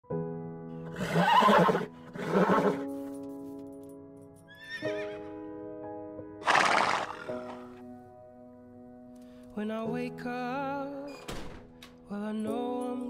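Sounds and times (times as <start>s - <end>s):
gentle piano music: 0.0s - 13.0s
horse snorting: 6.4s - 7.8s.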